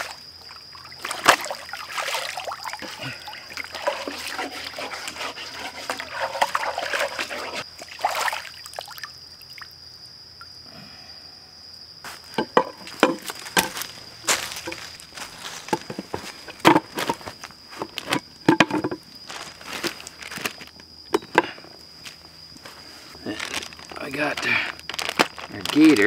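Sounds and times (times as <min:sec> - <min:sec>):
stream water sloshing and splashing: 0:00.0 - 0:09.6
cutting board rinsed by hand: 0:03.7 - 0:07.6.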